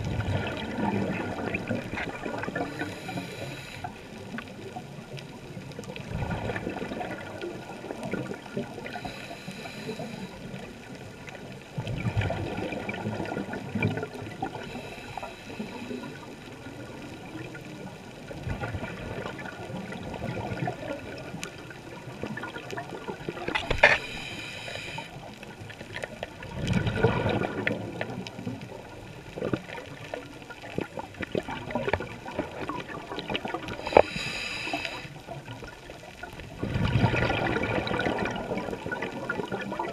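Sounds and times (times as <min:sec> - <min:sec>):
exhaled bubbles underwater: 0:00.0 - 0:39.9
diver breathing through regulator: 0:02.5 - 0:04.0, 0:08.9 - 0:10.4, 0:14.6 - 0:16.2, 0:23.8 - 0:25.2, 0:33.8 - 0:35.2
regulator hissing: 0:24.0 - 0:25.1, 0:33.8 - 0:35.1.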